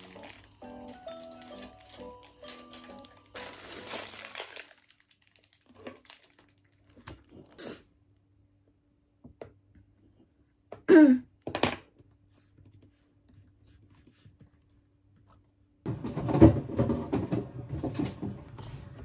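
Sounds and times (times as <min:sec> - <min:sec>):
paper wrapper crinkling: 0:00.0 - 0:07.6.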